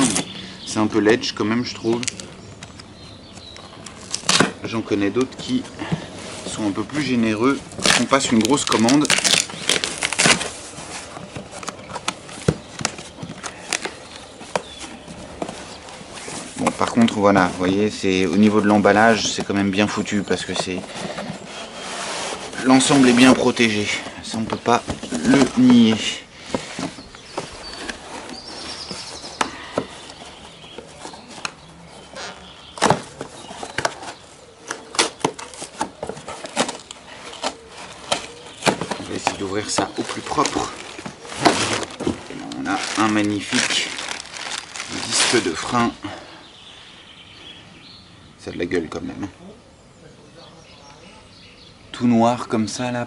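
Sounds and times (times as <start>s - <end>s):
cardboard flaps rustling: 0.0s - 46.1s
tape tearing: 3.6s - 4.6s, 6.4s - 17.5s, 26.6s - 45.8s
cardboard scraping: 3.7s - 46.0s.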